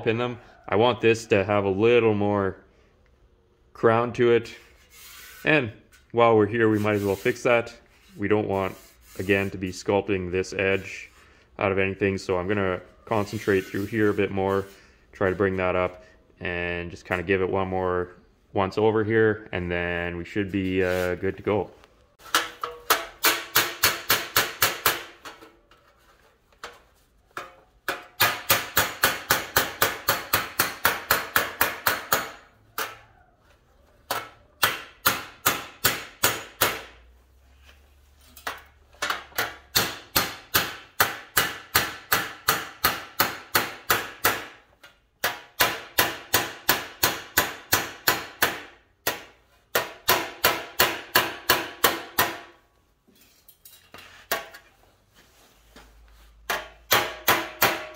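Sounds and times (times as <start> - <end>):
hammer tapping on sheet metal: 22.3 - 25.4, 27.4 - 33.0, 34.1 - 37.0, 38.5 - 44.6, 45.2 - 52.6, 56.5 - 57.9.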